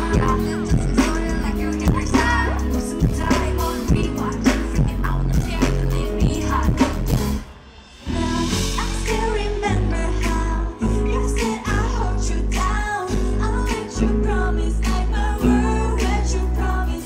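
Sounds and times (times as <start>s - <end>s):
person singing: 0.0s - 7.4s, 8.0s - 17.0s
pop dance track with heavy bass: 0.0s - 7.4s.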